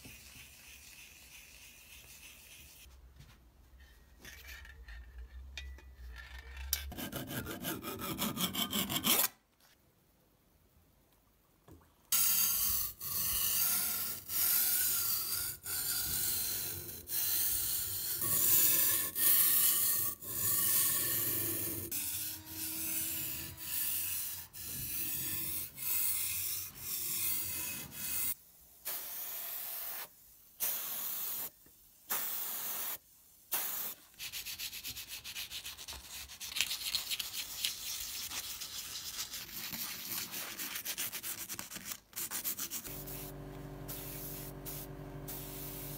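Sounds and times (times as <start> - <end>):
wet sandpaper scrubbing metal: 12.2 - 28.4, 34.1 - 43.3.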